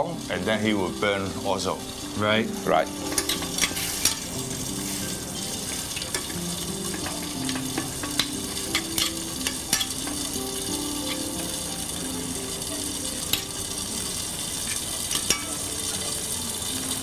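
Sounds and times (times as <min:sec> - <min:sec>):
meat sizzling in a pan: 0:00.0 - 0:17.0
spoon clicking against pan: 0:06.1 - 0:10.0.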